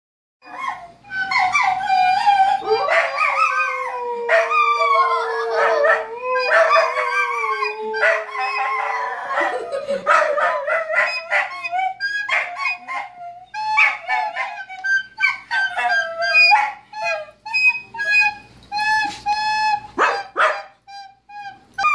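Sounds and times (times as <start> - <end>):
dogs howling and yipping: 0.4 - 17.4.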